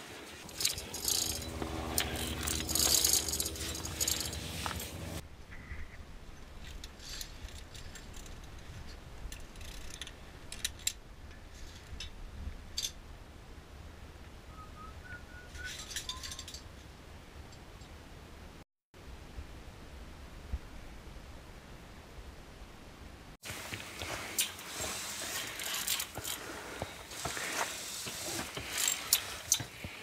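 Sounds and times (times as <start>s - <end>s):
metal gear clinking on cable: 0.4s - 5.2s, 6.6s - 11.0s, 15.6s - 16.7s, 25.2s - 26.4s, 27.2s - 29.7s
low steady rumble: 0.4s - 5.4s.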